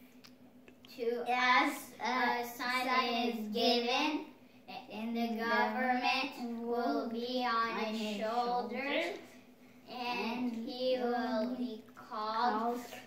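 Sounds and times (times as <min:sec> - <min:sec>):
child singing: 0:09.9 - 0:13.0.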